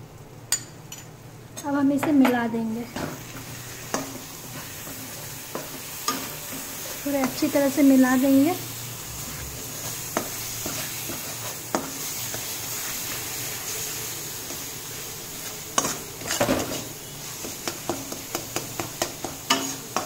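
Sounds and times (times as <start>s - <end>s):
spice paste sizzling in oil: 1.7s - 20.0s
metal spatula scraping pan: 15.4s - 20.0s
spatula knocking on pan: 17.6s - 20.0s.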